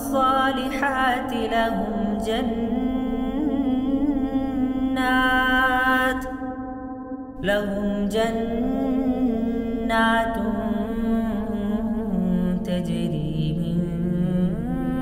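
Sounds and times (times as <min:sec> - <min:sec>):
man chanting: 0:00.0 - 0:06.3, 0:07.4 - 0:15.0.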